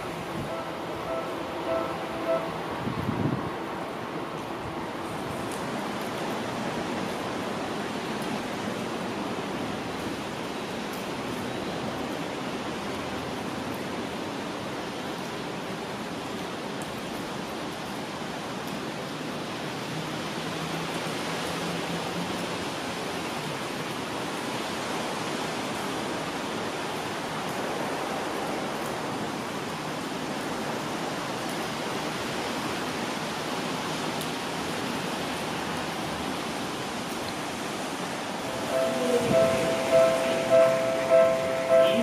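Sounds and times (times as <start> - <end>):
rain drizzle hissing: 25.3 - 42.0.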